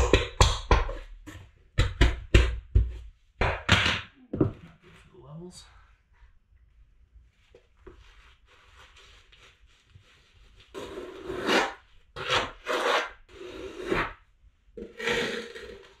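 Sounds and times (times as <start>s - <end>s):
knife scraping mortar: 10.7s - 14.2s, 14.8s - 16.0s.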